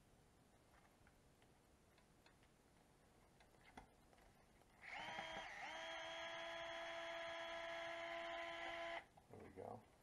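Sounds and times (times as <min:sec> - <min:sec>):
electric screwdriver motor whining: 0:04.8 - 0:09.1.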